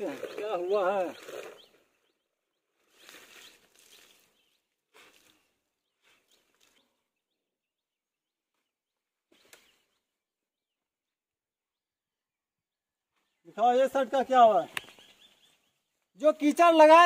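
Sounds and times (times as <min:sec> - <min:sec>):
birds chirping: 0:00.0 - 0:17.0
water splashing and dripping: 0:02.9 - 0:05.5.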